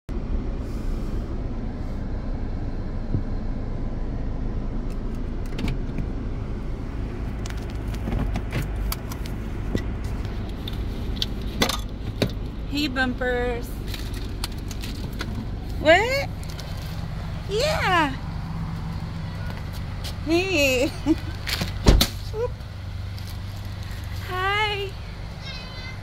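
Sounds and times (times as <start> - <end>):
car engine idling: 0.1 - 26.0
light clicks and rustles: 7.4 - 12.6, 23.0 - 24.3.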